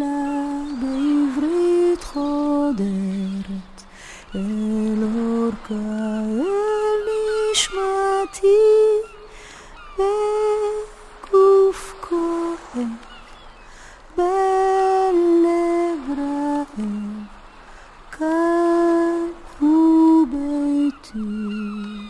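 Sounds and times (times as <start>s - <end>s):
person humming a slow melody: 10.0s - 13.0s, 18.2s - 22.0s.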